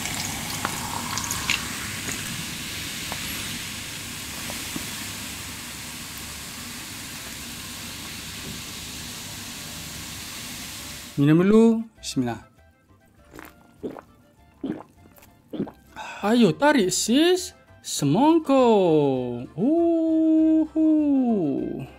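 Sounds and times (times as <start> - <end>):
liquid pouring into a glass: 0.0 - 2.4, 13.4 - 16.0.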